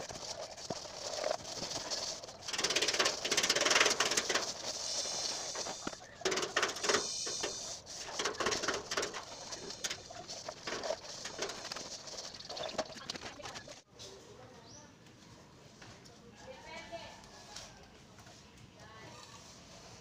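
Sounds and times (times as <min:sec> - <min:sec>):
straightedge scraping wet plaster: 0:00.0 - 0:13.8.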